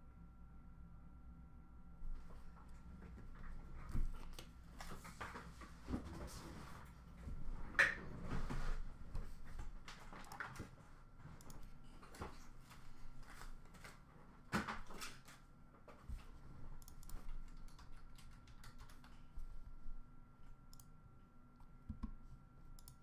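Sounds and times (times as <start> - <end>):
faint high-pitched hum: 0.0 - 23.0
computer keyboard and mouse clicks: 9.6 - 10.8, 11.4 - 12.4, 16.8 - 19.3, 21.9 - 22.2, 22.8 - 23.0.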